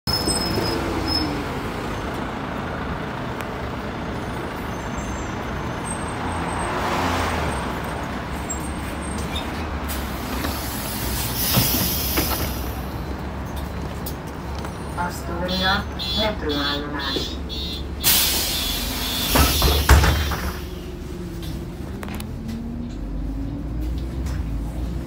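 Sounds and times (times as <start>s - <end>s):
bus engine rumbling: 0.0s - 25.0s
air brake hiss: 10.0s - 12.7s, 18.0s - 20.8s.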